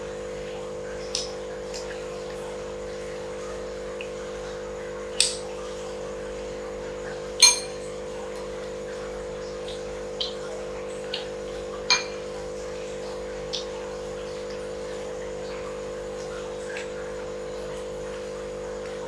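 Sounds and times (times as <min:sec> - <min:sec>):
dishes clinking on glass table: 0:07.4 - 0:08.0, 0:11.9 - 0:12.4
steady low hum: 0:07.4 - 0:08.4, 0:11.6 - 0:13.7.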